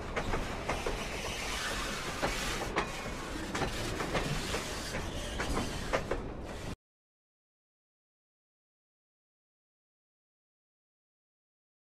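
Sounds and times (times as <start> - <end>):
train rumbling on rails: 0.0 - 6.8.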